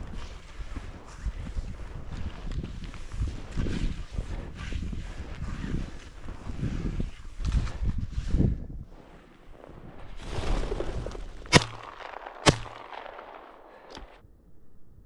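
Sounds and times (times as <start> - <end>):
shotgun shots: 11.3 - 14.2.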